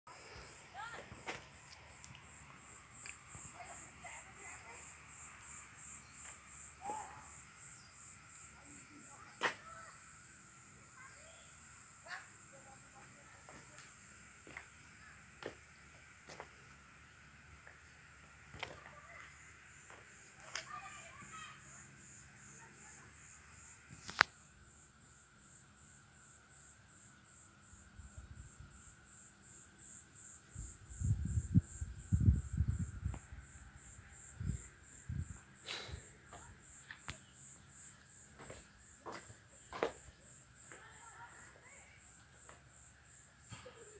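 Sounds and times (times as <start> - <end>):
high-pitched insect drone: 0.1 - 43.9.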